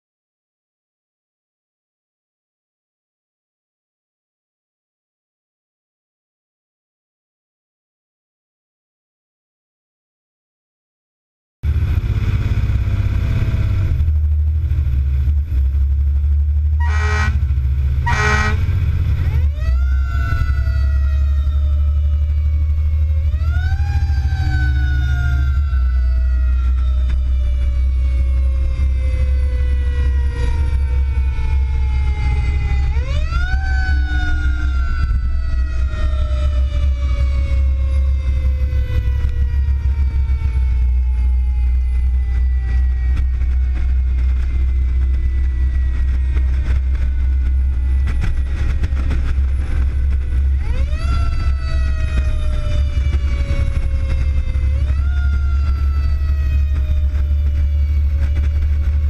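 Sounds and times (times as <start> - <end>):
road noise: 11.6 - 59.0
truck engine drone: 11.6 - 59.0.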